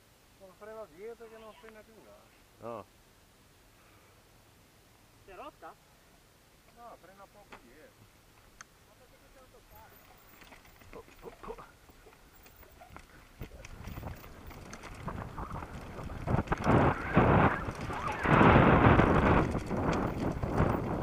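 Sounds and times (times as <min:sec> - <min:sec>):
bike tyres over loose stones: 0:09.1 - 0:21.0
bike rattling and knocking: 0:09.8 - 0:21.0.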